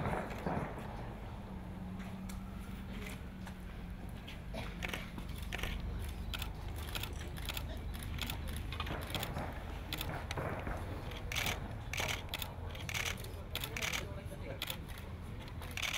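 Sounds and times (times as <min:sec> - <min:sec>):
camera shutters clicking: 0:04.8 - 0:10.4, 0:11.1 - 0:15.9.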